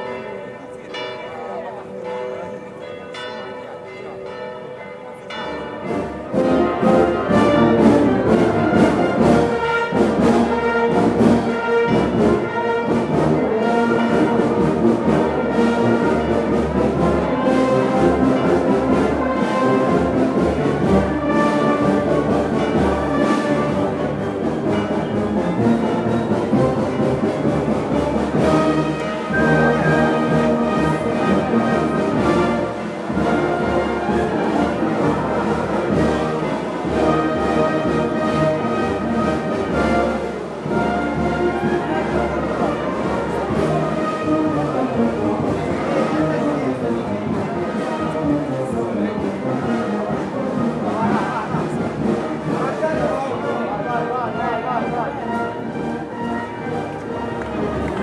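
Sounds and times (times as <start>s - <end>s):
church bells ringing: 0.0s - 38.6s
brass band playing: 5.8s - 58.0s.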